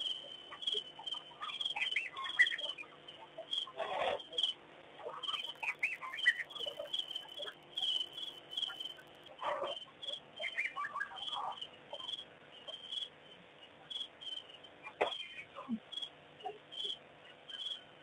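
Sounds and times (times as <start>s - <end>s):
high chirping: 0.0s - 13.2s
birds calling: 0.0s - 15.7s.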